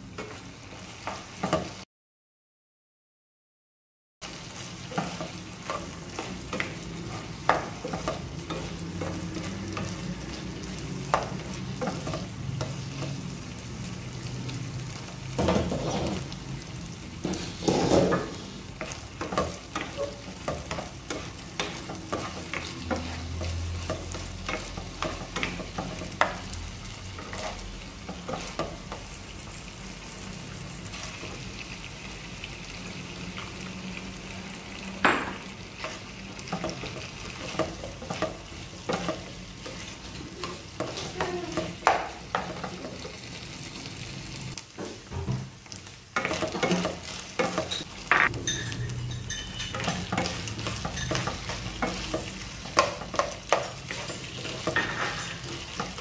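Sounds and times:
chicken sizzling in oil: 4.2 - 56.0
spatula scraping a pan: 15.4 - 16.3, 17.2 - 29.1, 46.2 - 56.0.

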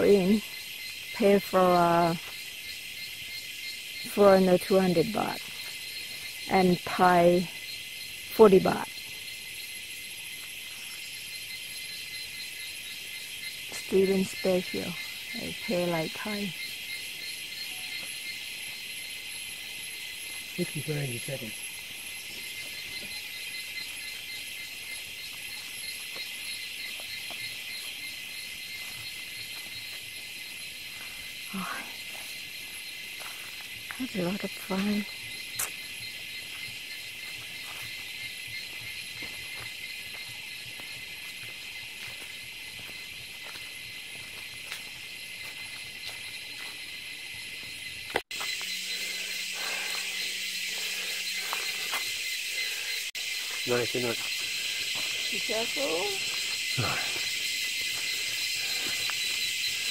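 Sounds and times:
insect chorus drone: 0.0 - 59.9
faint footsteps on forest floor: 2.1 - 2.6, 5.0 - 6.5, 21.7 - 59.9.

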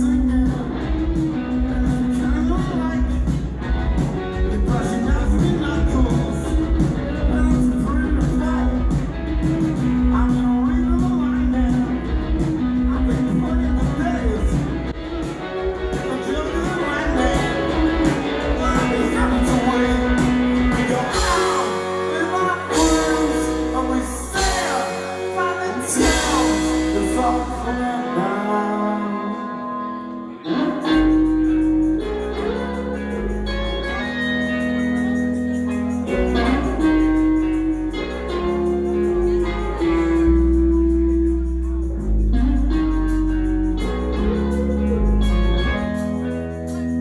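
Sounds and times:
man singing: 0.0 - 3.5, 4.2 - 14.9, 15.6 - 35.4
rock band playing live: 0.0 - 47.0.

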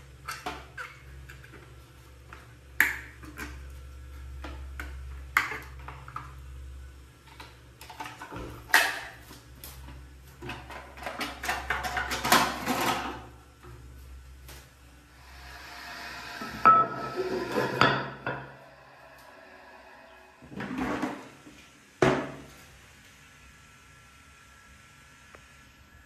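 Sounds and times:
steady low hum: 13.1 - 26.0.

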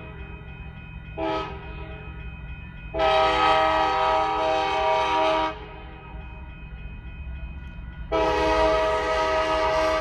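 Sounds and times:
low train rumble: 0.0 - 10.0
locomotive air horn chord: 3.0 - 5.6, 8.1 - 10.0.

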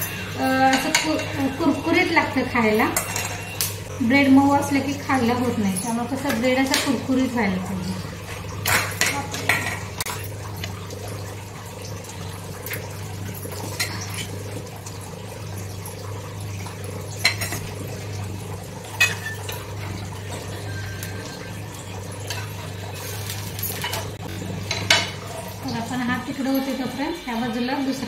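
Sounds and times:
kitchen utensils clinking: 0.0 - 10.8, 12.5 - 14.6, 16.7 - 18.2, 18.8 - 27.2.

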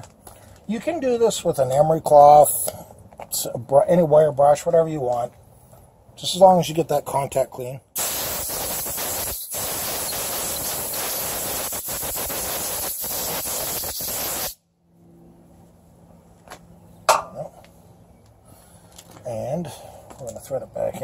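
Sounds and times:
air blow gun hissing: 8.0 - 14.6.

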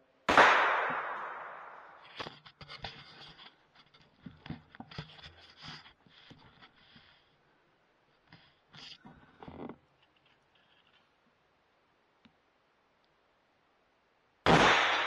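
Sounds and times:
faint scrapes and clicks: 1.9 - 7.4, 8.1 - 11.2.

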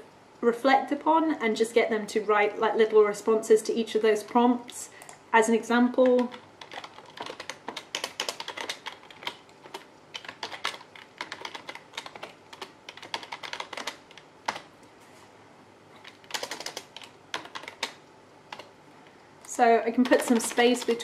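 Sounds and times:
typing on computer keyboard: 6.0 - 14.7, 16.0 - 18.7, 19.6 - 21.0.

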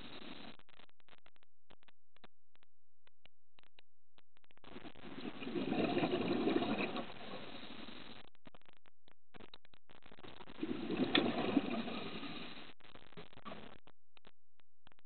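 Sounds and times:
underwater breath bubbles gurgling: 5.0 - 7.8, 10.6 - 12.6.

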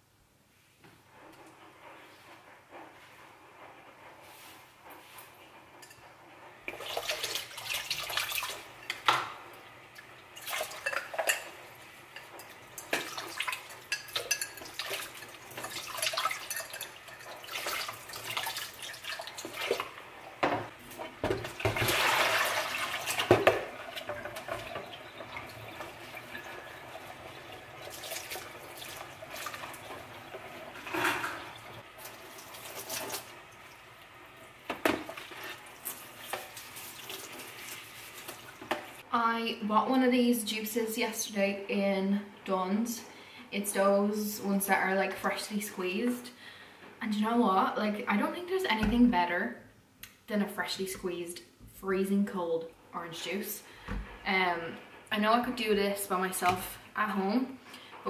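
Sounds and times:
dish brush scrubbing: 1.1 - 39.0
plastic dishes clattering in sink: 19.4 - 26.8, 27.8 - 31.8, 34.7 - 35.6.

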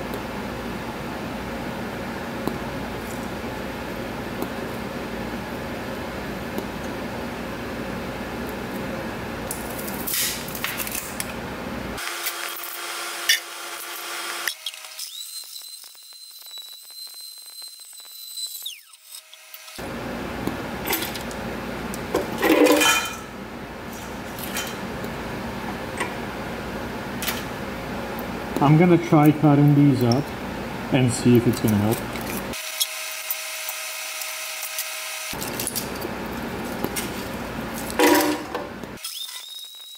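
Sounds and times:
blender running: 12.0 - 19.9, 32.5 - 35.4.

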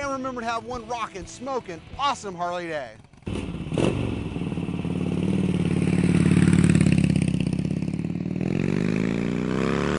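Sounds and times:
motorcycle engine revving: 3.0 - 9.9.

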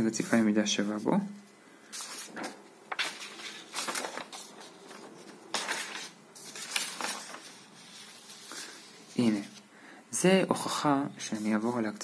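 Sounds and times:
paper sheets rustling: 1.9 - 9.6.

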